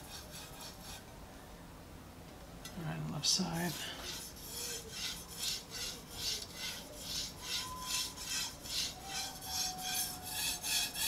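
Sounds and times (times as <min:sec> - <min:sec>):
knife scraping on whetstone: 0:00.0 - 0:01.0, 0:03.6 - 0:11.0.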